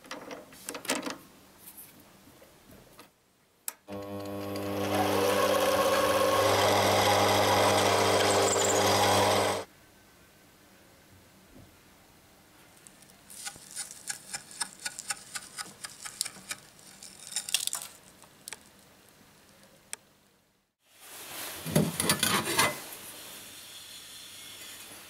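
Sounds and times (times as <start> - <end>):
rough scraping of metal: 8.2 - 9.6.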